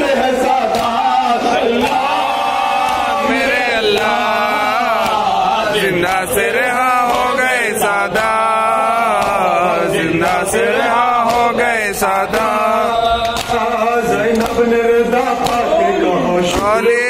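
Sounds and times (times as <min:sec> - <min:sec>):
man chanting into a microphone: 0:00.0 - 0:17.0
hands slapping chests: 0:00.1 - 0:15.8, 0:16.4 - 0:17.0.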